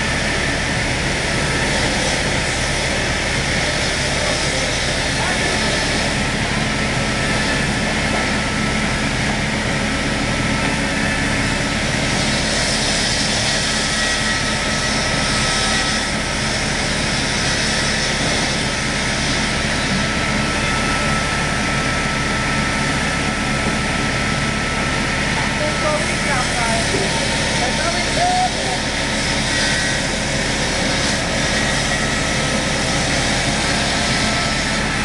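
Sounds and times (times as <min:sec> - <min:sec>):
sawing machine cutting log: 0:00.0 - 0:35.0.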